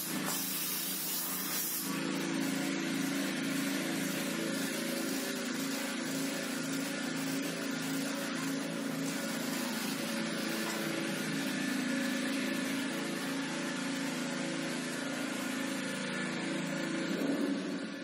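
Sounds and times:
steam hiss: 0.0s - 2.3s
motor humming: 0.0s - 18.0s.

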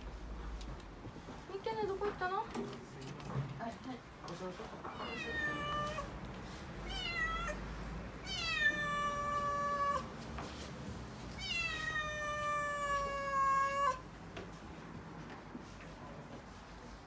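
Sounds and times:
kitten yowling: 5.0s - 6.1s, 6.8s - 7.6s, 8.2s - 10.1s, 11.4s - 14.0s.

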